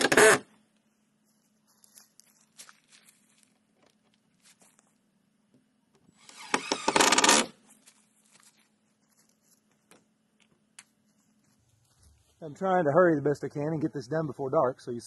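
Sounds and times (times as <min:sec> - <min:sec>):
cordless drill driving screw: 0:00.0 - 0:00.4, 0:06.2 - 0:07.5.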